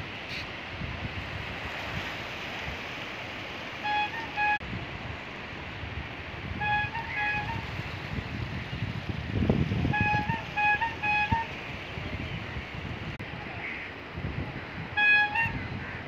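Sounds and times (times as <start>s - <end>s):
sea surf: 0.0s - 16.0s
wind rushing: 4.2s - 16.0s.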